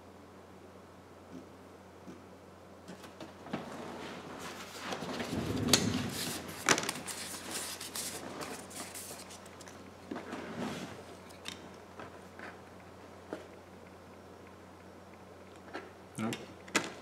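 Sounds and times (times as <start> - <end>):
rustling: 3.0 - 11.3.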